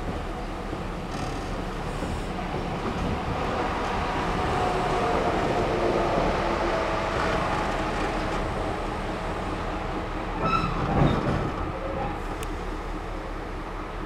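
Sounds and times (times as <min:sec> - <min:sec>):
diesel locomotive rumble: 0:00.0 - 0:14.0.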